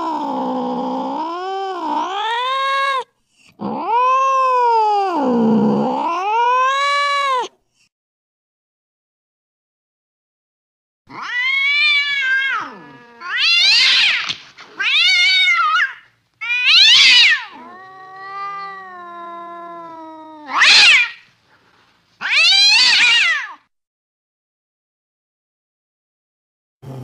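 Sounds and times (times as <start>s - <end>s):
low cat moan: 0.0s - 7.4s, 12.4s - 13.6s, 17.5s - 20.6s
cats meowing: 0.0s - 7.5s, 11.1s - 21.3s, 22.2s - 23.6s
kitten meowing: 11.1s - 21.2s, 22.2s - 23.6s.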